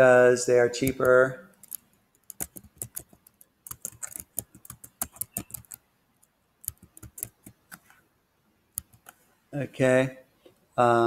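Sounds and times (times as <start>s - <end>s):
keyboard typing: 0.8s - 8.0s, 8.7s - 9.3s.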